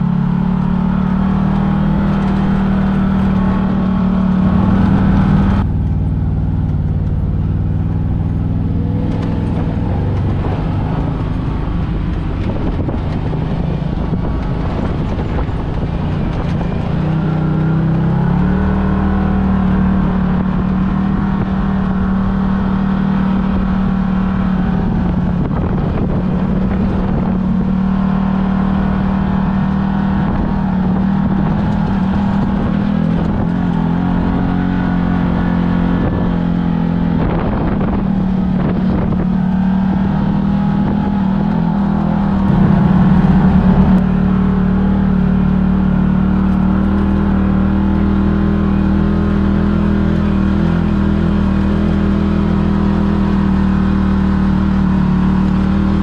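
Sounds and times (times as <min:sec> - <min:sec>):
off-road vehicle engine humming: 0:00.0 - 0:56.0.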